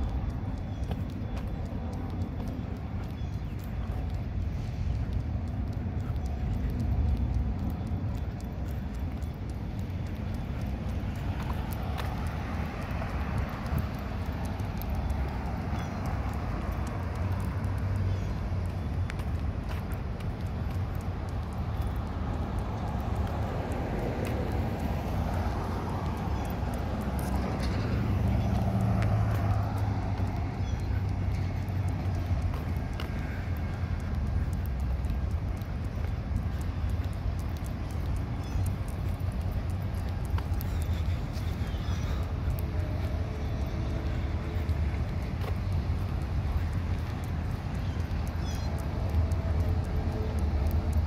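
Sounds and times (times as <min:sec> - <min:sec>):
faint footsteps walking: 0:00.0 - 0:51.0
traffic rumble: 0:00.0 - 0:51.0
footsteps on concrete: 0:19.1 - 0:20.3.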